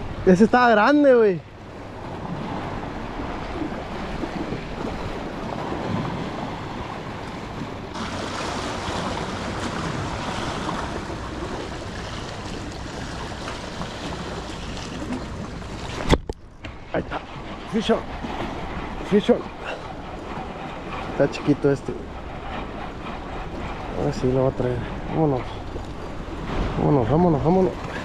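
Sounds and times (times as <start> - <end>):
waves washing against rocks: 2.0 - 16.2.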